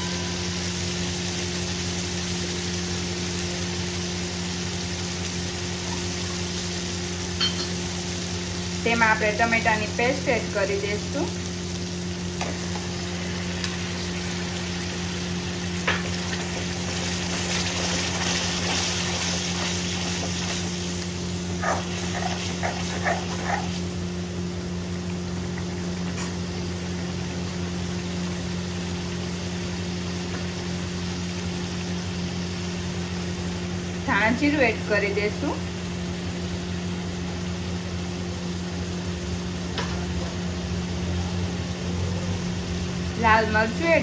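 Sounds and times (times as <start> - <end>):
paste sizzling in hot oil: 0.0 - 36.8
spatula scraping a pan: 21.6 - 23.9.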